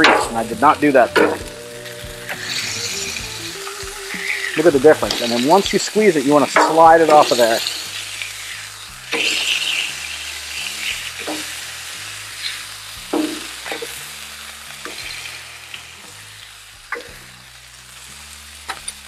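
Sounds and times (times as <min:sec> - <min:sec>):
metal spatula scraping griddle: 0:00.0 - 0:11.7
meat sizzling on griddle: 0:00.0 - 0:19.0.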